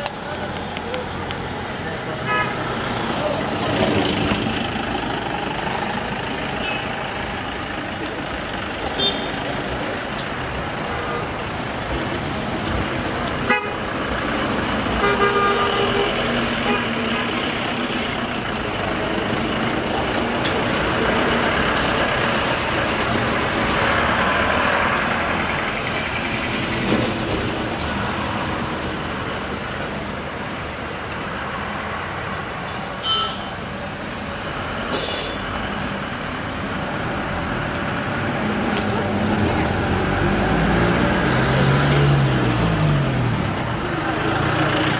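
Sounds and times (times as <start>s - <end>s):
horn tooting: 13.5s - 13.8s, 15.0s - 16.9s
steam locomotive hissing: 34.5s - 36.0s.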